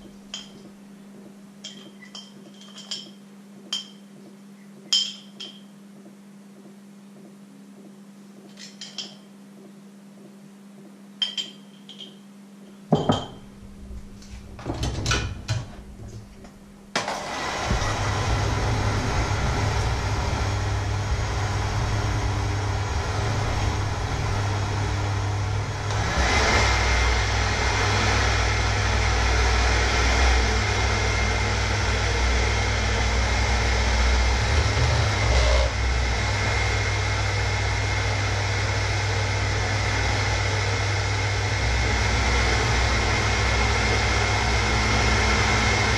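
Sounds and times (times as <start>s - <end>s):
electric hand mixer whisking: 17.1s - 45.9s.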